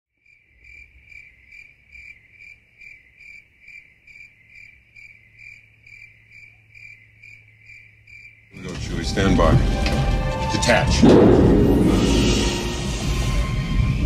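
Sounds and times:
cricket chirping: 0.2 - 8.6.

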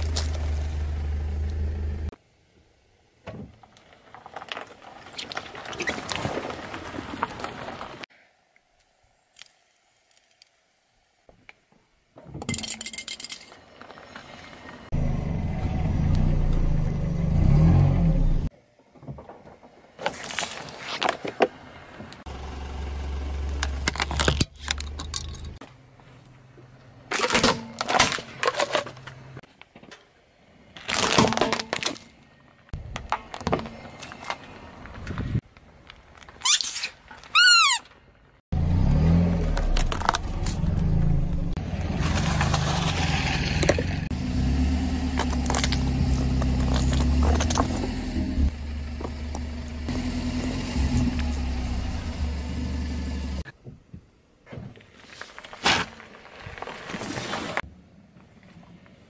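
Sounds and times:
car engine running: 0.0 - 2.1, 14.9 - 18.5, 22.3 - 25.6, 43.6 - 53.4
plastic cracking under tyre: 30.8 - 32.1, 39.4 - 40.7, 45.2 - 47.8.

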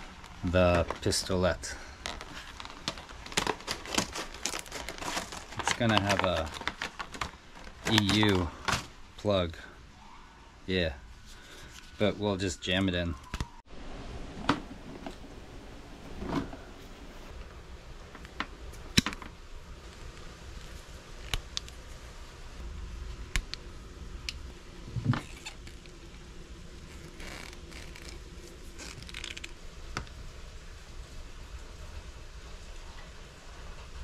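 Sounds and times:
tool handling noise: 14.3 - 17.3.

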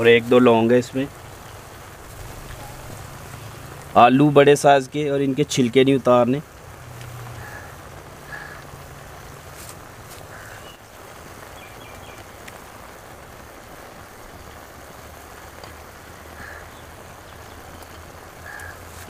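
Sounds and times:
low steady hum: 1.1 - 4.4
distant bird calls: 1.2 - 4.0, 7.1 - 9.4, 10.2 - 12.7, 16.0 - 19.0.

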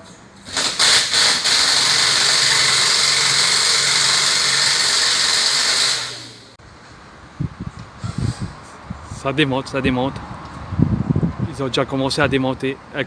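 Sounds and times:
pneumatic wrench running: 0.4 - 6.6.

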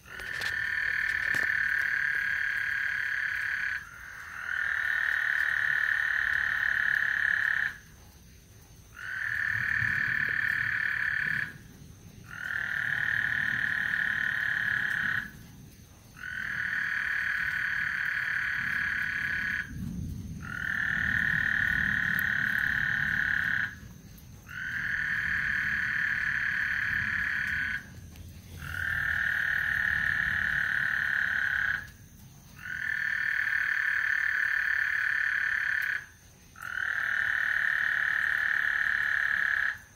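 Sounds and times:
frogs trilling: 0.0 - 39.9
distant thunder rumbling: 8.9 - 32.0.

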